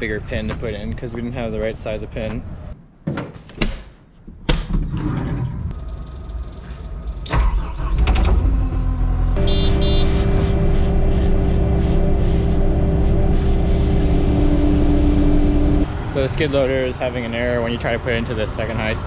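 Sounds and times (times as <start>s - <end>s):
diesel engine starting and running: 5.4s - 19.0s.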